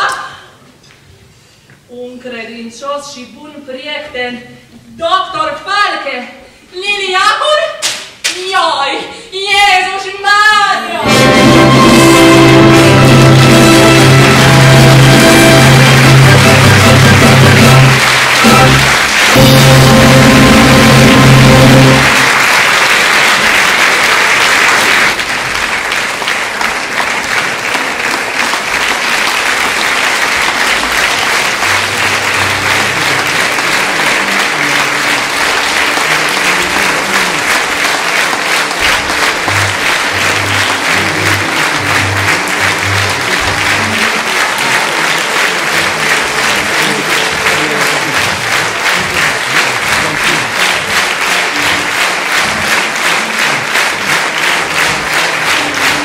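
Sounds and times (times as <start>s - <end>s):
orchestra final chord: 11.0s - 22.3s
audience applause: 11.0s - 56.0s.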